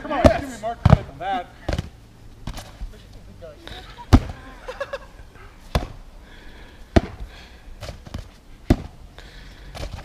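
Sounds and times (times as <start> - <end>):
foam swords thwacking: 5.7 - 6.0, 6.9 - 9.0.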